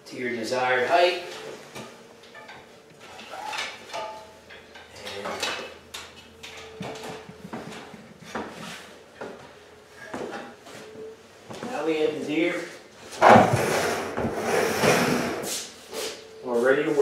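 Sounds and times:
ladder knocking: 13.2s - 15.3s.

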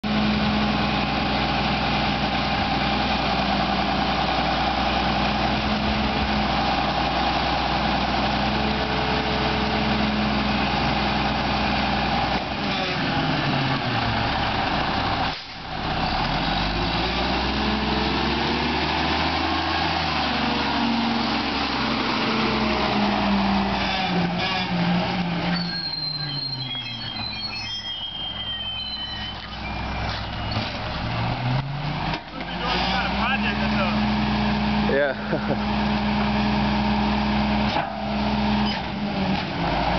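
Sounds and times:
garbage truck diesel engine: 0.0s - 39.9s
thin high squeals: 25.4s - 30.8s.

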